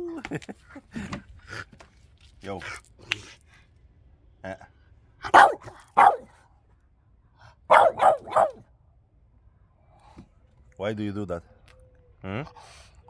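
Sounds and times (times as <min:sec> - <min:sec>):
dog barking: 0:05.3 - 0:06.4, 0:07.7 - 0:08.7.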